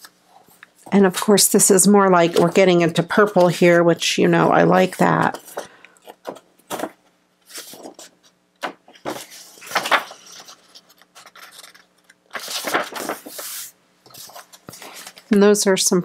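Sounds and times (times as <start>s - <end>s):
paper pages rustling: 4.7s - 15.4s.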